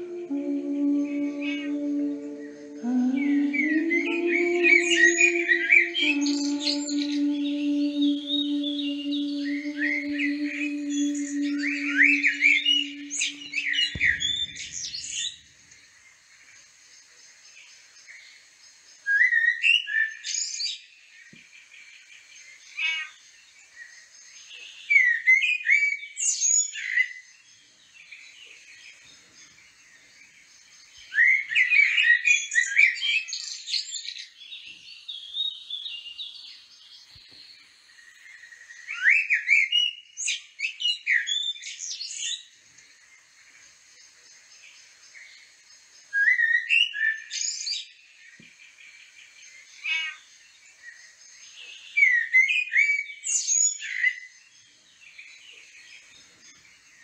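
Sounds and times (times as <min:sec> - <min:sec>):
songbird whistling and chirping: 0:00.0 - 0:15.5, 0:19.0 - 0:20.9, 0:24.6 - 0:27.2, 0:31.0 - 0:42.5, 0:46.1 - 0:48.6, 0:50.8 - 0:56.8
faint high chirping: 0:00.0 - 0:15.7.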